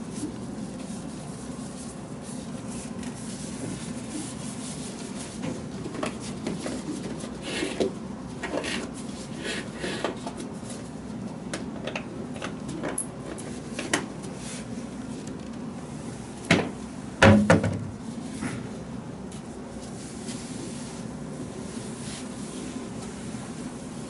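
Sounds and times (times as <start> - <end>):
wooden cabinet door banging: 16.5 - 17.9.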